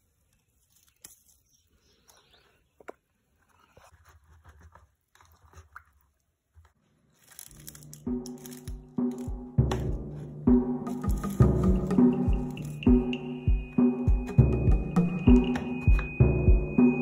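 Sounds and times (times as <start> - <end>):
music with deep drum beats: 8.1 - 17.0.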